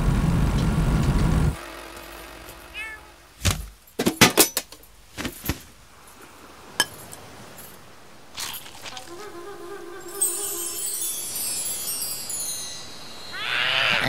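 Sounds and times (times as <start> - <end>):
cat meowing: 2.7 - 3.2.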